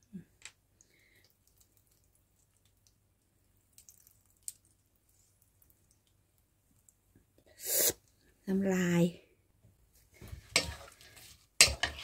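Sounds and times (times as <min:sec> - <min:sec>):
faint drips and clicks: 0:00.0 - 0:07.4.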